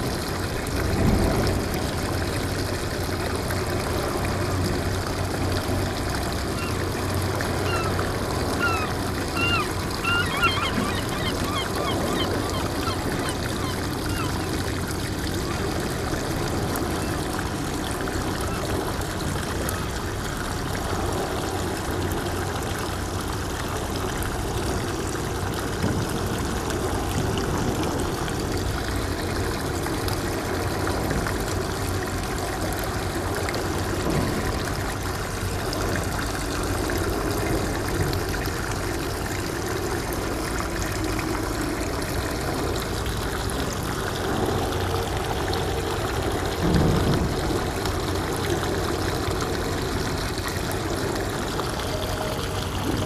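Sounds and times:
water lapping over rocks: 0.0s - 53.0s.

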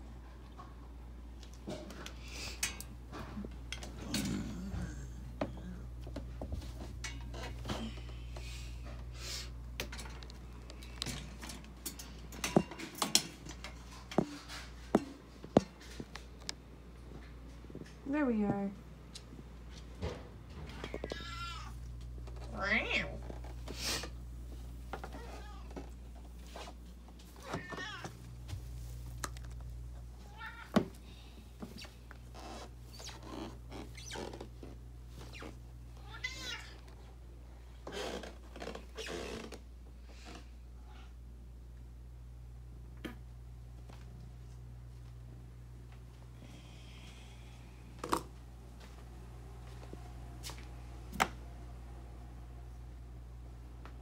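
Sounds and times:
steady low hum: 0.0s - 54.0s
cat meowing: 20.9s - 21.8s, 27.4s - 28.1s, 36.0s - 36.8s.

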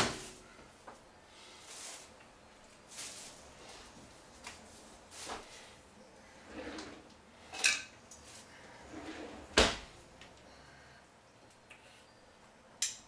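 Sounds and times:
drawer knocks and rattles: 9.2s - 9.9s
drawer thumping shut: 9.5s - 9.9s.

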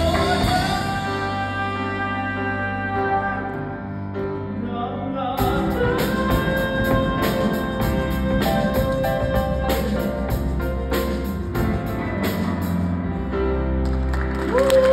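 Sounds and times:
man singing: 0.0s - 10.7s
musical accompaniment: 0.0s - 14.9s.

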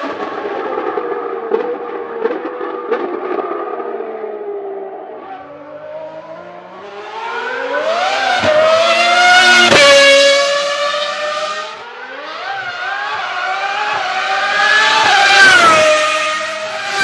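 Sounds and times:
racing car engine at full throttle: 0.0s - 17.0s.

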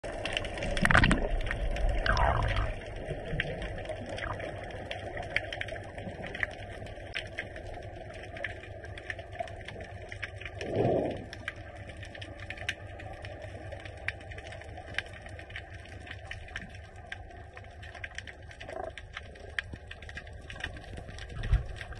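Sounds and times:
underwater clicks and crackles: 0.0s - 21.9s
underwater rumble: 0.0s - 21.9s
low underwater whoosh: 0.1s - 8.4s, 9.8s - 12.4s.

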